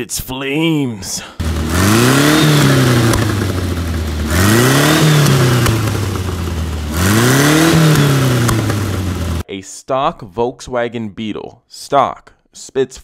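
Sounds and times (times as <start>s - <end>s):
car engine revving: 1.4s - 9.4s
exhaust pops: 1.4s - 9.4s.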